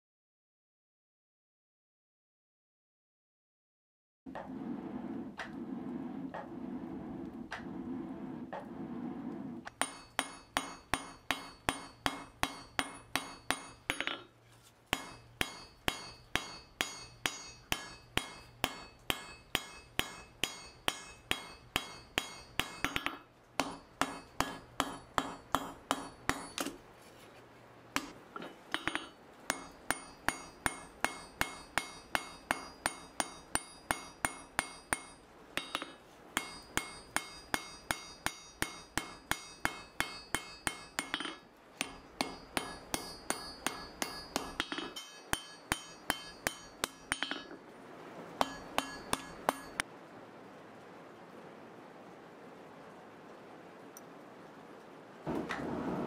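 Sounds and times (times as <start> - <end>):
hammer striking steel on anvil: 9.7 - 14.3, 14.9 - 26.8, 28.0 - 47.6, 48.4 - 49.8.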